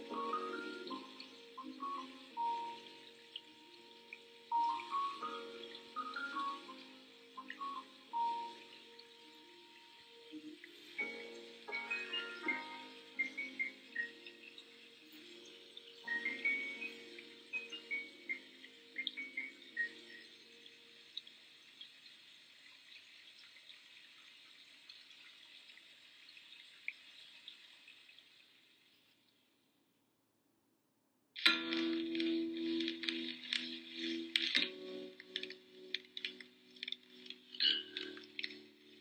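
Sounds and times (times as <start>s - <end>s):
soft lo-fi guitar music: 0.0s - 20.9s, 31.4s - 39.0s
small ticks: 31.4s - 39.0s.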